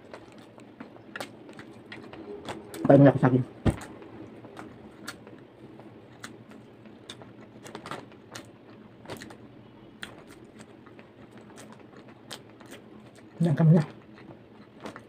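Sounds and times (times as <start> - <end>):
chewing: 4.5 - 8.5, 10.0 - 15.0.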